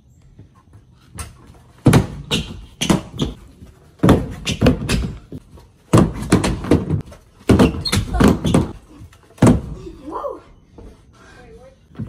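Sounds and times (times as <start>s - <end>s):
scooter clattering on wooden ramp: 1.2s - 9.8s.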